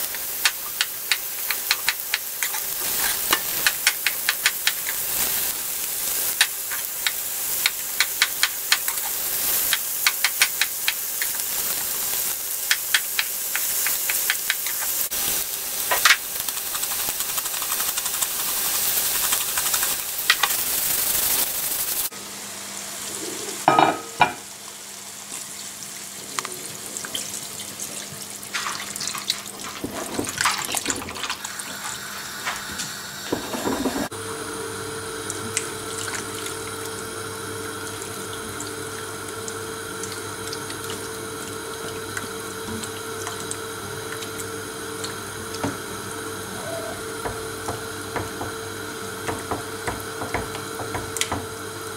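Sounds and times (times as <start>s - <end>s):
vegetables sizzling in a pan: 0.0s - 25.9s.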